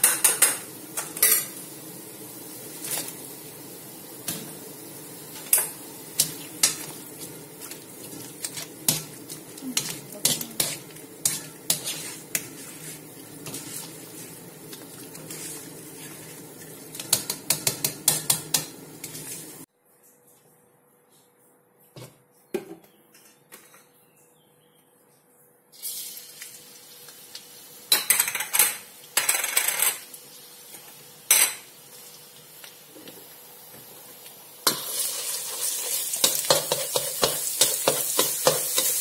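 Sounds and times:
wire strainer scraping a wok: 8.0 - 16.3.

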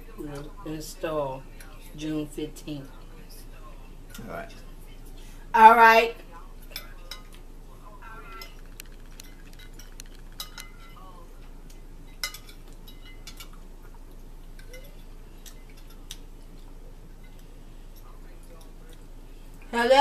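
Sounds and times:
forks clinking on plates: 6.6 - 7.4, 8.2 - 19.0.

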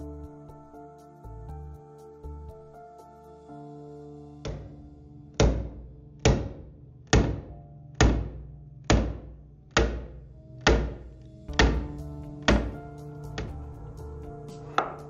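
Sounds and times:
background music: 0.0 - 15.0.

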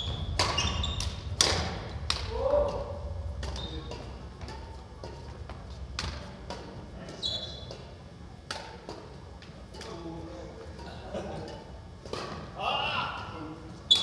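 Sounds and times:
racket striking shuttlecock: 0.1 - 9.9, 12.0 - 12.5
shoe squeak on wooden floor: 7.2 - 7.6.

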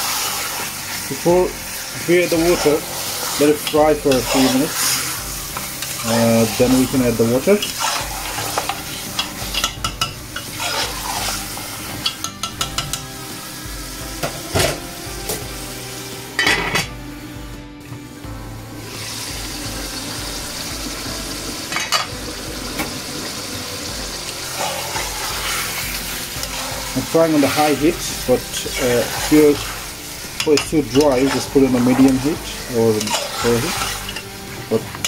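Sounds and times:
meat and onions sizzling: 0.0 - 35.0
metal spoon scraping a pot: 2.5 - 13.0, 24.5 - 34.3.

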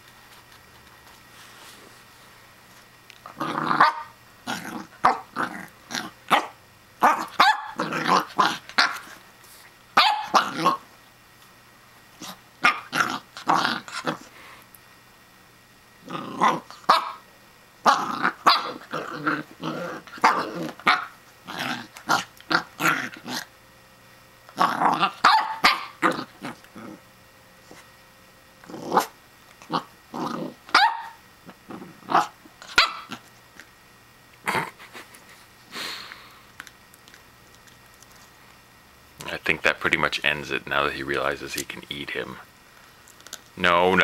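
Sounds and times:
puppy growling: 3.2 - 9.2, 10.0 - 10.9, 12.2 - 14.4, 16.0 - 17.2, 17.8 - 23.5, 24.5 - 27.0, 28.6 - 33.7, 34.4 - 35.2
puppy barking: 3.8 - 4.2, 5.0 - 5.4, 6.3 - 9.1, 10.0 - 10.8, 12.2 - 14.1, 16.4 - 17.2, 17.8 - 19.1, 20.2 - 21.2, 24.7 - 26.4, 30.7 - 31.2, 32.1 - 33.2.

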